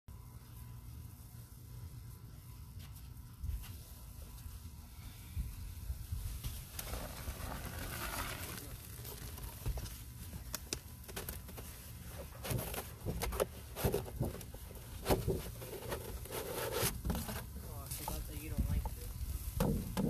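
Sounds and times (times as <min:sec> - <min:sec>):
foamy paste crackling and squelching: 0:06.1 - 0:19.5.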